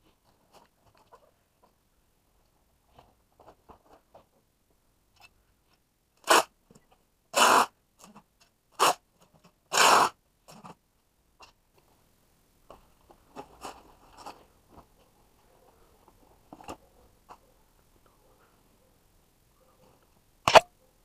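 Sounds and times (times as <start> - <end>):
packing tape ripped off dispenser: 6.2 - 6.5, 7.4 - 7.7, 8.8 - 9.0, 9.7 - 10.2.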